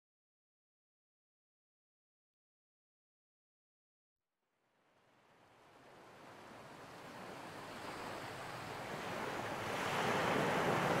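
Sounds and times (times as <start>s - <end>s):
ocean surf rushing: 5.7s - 11.0s.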